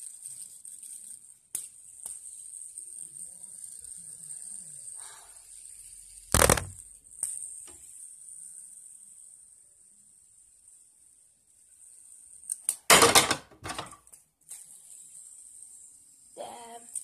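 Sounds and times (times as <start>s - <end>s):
fidget spinner clicks: 0.0s - 8.0s, 12.2s - 12.9s, 16.8s - 17.0s.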